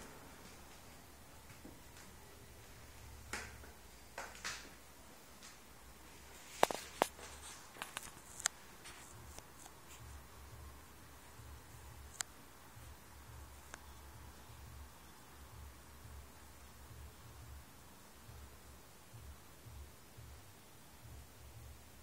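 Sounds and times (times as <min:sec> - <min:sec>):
faint clicks and taps: 0:06.6 - 0:10.2.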